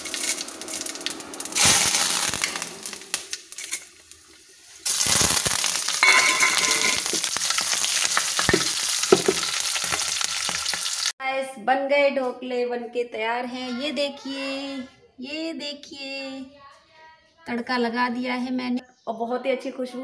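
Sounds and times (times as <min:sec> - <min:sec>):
chillies sizzling in hot oil: 0:00.0 - 0:11.2.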